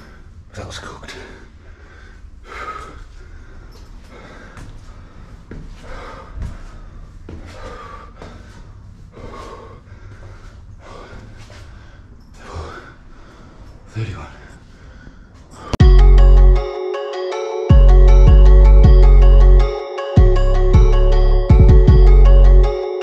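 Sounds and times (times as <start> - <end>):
man breathing hard: 1.2 - 15.8.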